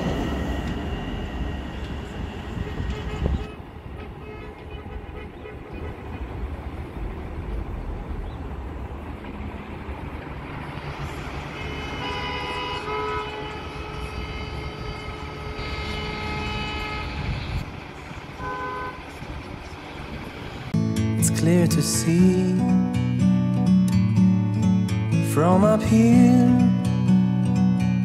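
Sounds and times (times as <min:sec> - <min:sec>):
electric train rumbling: 0:00.0 - 0:28.0
road traffic: 0:00.0 - 0:28.0
train horn held notes: 0:02.5 - 0:06.2, 0:11.5 - 0:17.6.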